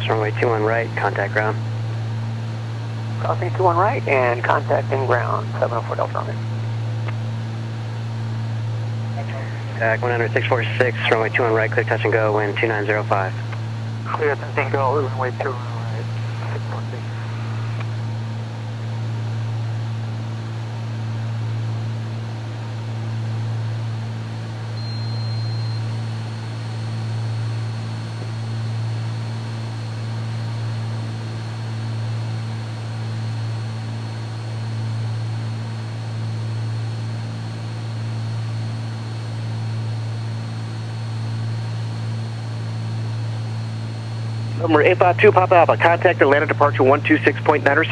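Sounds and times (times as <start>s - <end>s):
aircraft engines droning in cockpit: 0.0s - 47.9s.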